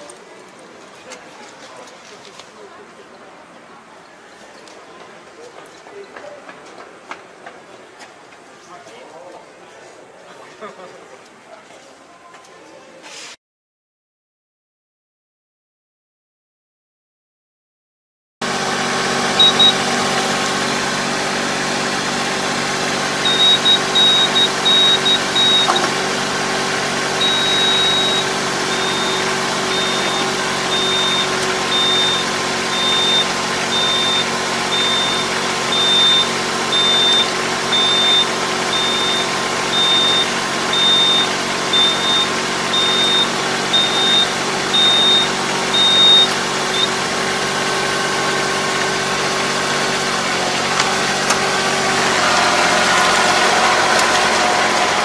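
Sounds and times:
tractor engine idling: 0:18.5 - 0:55.0
high electronic warning beep: 0:19.4 - 0:19.9, 0:23.2 - 0:25.9, 0:27.2 - 0:47.0.

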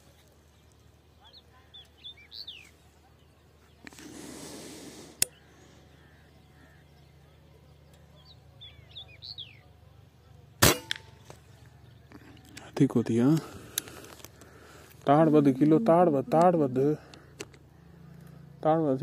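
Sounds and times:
faint bird chirps: 0:00.4 - 0:04.2, 0:05.3 - 0:10.4
air rifle shot: 0:10.6 - 0:11.2.

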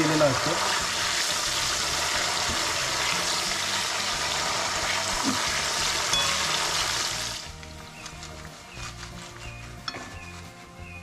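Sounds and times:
oil sizzling in a wok: 0:00.0 - 0:10.4
metal strainer clink: 0:06.1 - 0:06.6.

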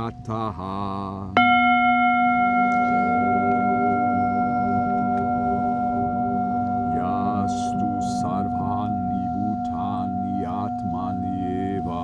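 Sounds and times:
singing bowl ringing: 0:01.4 - 0:12.0.

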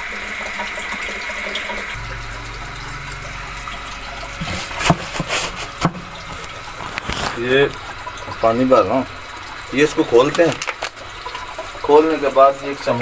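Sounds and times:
water filling a can: 0:00.0 - 0:13.0
low hum: 0:01.9 - 0:09.8
sharp knocks: 0:02.0 - 0:08.4.

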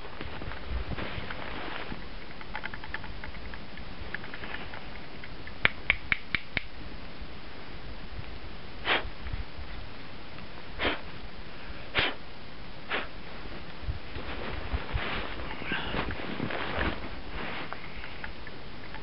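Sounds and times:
soft scuffs: 0:14.1 - 0:17.8.

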